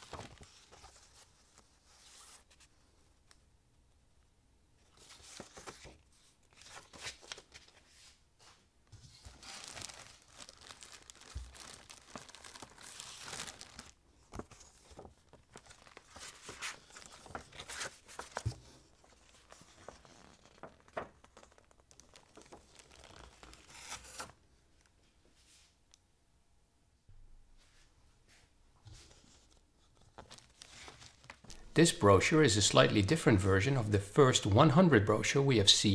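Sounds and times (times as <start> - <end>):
paper and plastic rustling: 0.0 - 2.7, 5.0 - 24.4, 28.9 - 31.8.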